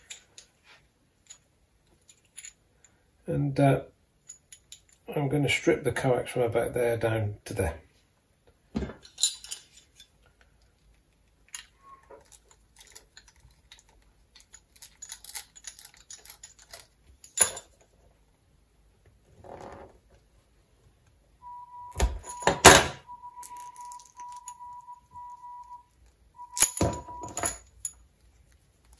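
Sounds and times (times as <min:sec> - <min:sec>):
tools clicking and scraping on cable: 0:00.0 - 0:03.0, 0:04.2 - 0:05.1, 0:09.0 - 0:18.2, 0:21.9 - 0:28.9.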